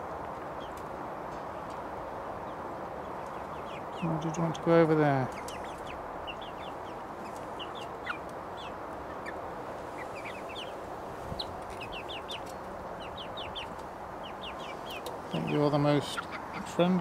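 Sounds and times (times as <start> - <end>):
background hiss: 0.0 - 17.0
chicks cheeping: 1.5 - 17.0.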